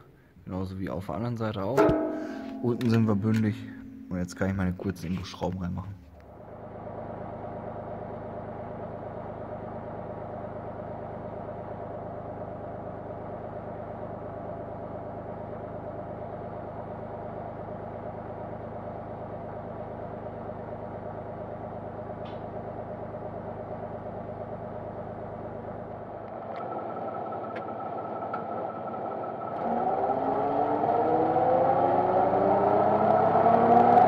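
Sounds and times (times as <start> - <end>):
tractor engine idling: 6.2 - 29.5.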